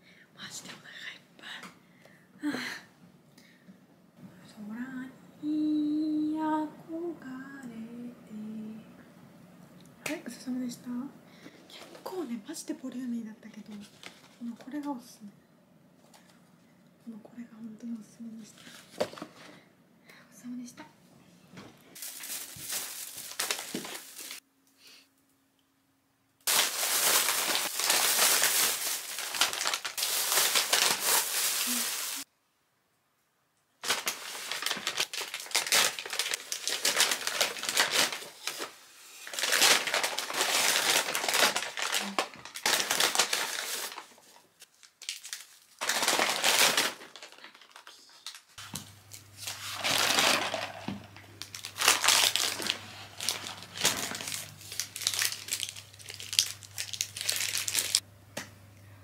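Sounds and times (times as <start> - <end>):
paper wrapper crinkling: 13.7 - 14.9, 22.0 - 24.4, 26.4 - 32.3, 33.8 - 58.0
bags rustling and crinkling: 22.0 - 24.4, 26.5 - 32.3, 33.8 - 58.0.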